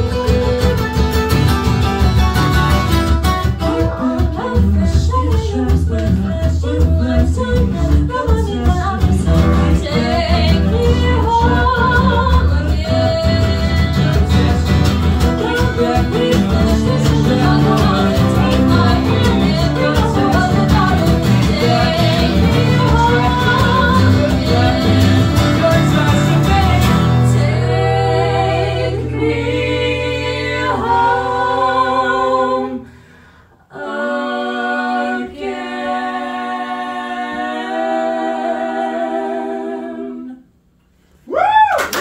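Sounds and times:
guitars and mandolin strumming: 0:00.0 - 0:27.6
voices singing in harmony: 0:03.6 - 0:40.7.

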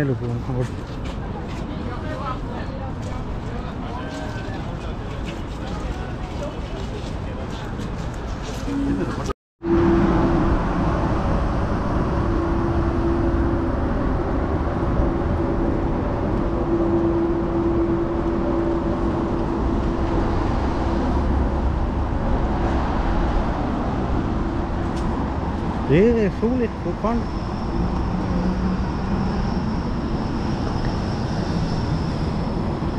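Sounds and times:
steady hum: 0:08.7 - 0:32.9.

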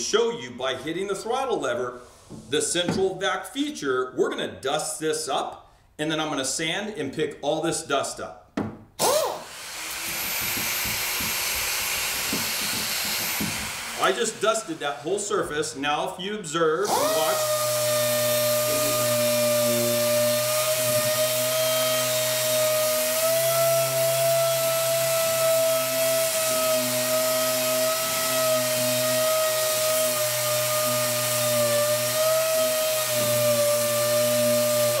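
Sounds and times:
orbital sander whining: 0:09.0 - 0:15.3, 0:16.8 - 0:35.0.

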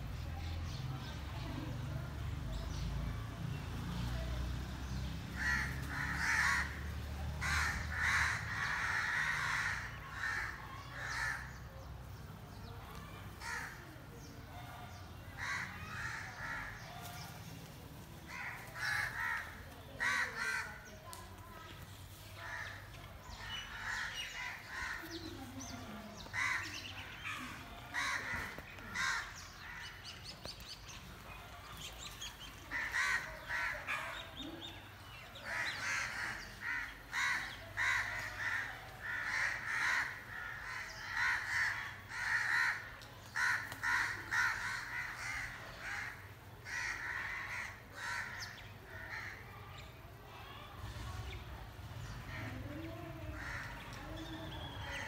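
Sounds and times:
crows cawing: 0:05.3 - 0:11.6, 0:13.0 - 0:13.9, 0:15.4 - 0:17.2, 0:18.3 - 0:20.9, 0:22.4 - 0:25.3, 0:26.2 - 0:30.0, 0:32.7 - 0:34.3, 0:35.4 - 0:49.5, 0:53.3 - 0:54.0.

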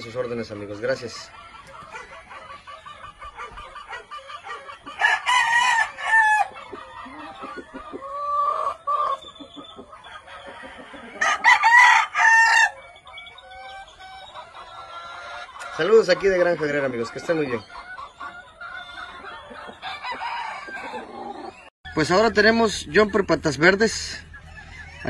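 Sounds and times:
chicken calls: 0:00.0 - 0:25.0
rooster crowing: 0:05.0 - 0:06.5, 0:11.1 - 0:12.8, 0:19.8 - 0:21.3.

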